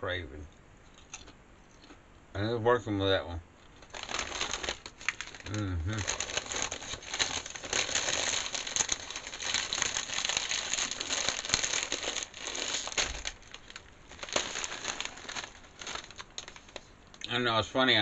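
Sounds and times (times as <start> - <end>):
chip bag crinkling: 3.7 - 17.4
potato chips crunching: 3.8 - 17.3.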